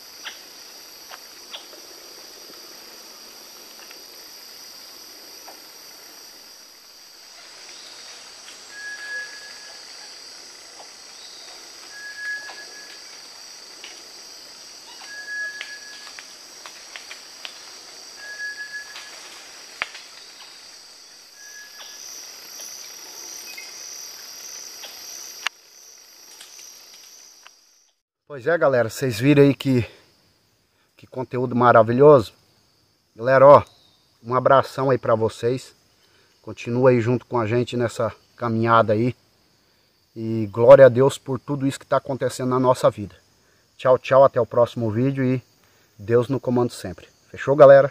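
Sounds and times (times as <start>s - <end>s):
insect chorus shrilling: 0.0s - 47.9s
bird whistled note: 11.9s - 12.9s, 15.0s - 16.0s.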